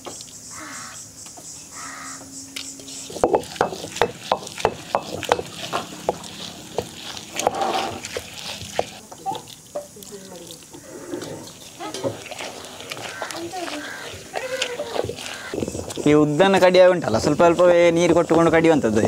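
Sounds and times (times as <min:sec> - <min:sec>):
crow cawing: 0:00.5 - 0:01.0, 0:01.7 - 0:02.3, 0:13.0 - 0:15.6
stone grinder clicks and crunches: 0:02.6 - 0:16.1.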